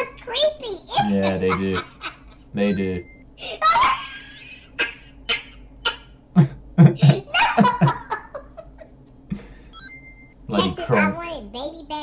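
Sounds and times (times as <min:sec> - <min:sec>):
man laughing: 0:01.0 - 0:03.0, 0:06.4 - 0:09.6.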